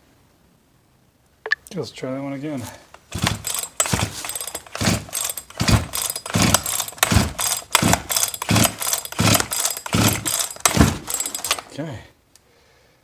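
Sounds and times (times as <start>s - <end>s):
pull-start rope whirring: 3.0s - 11.8s
engine compression thump: 3.1s - 11.7s.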